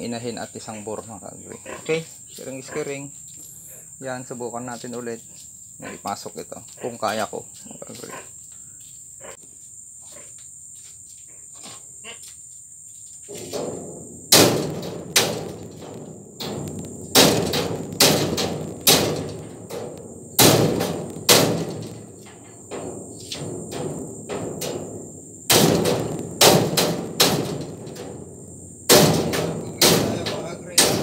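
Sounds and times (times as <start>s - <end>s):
insect drone: 0.0s - 31.0s
metal bangs and clanks: 13.3s - 31.0s.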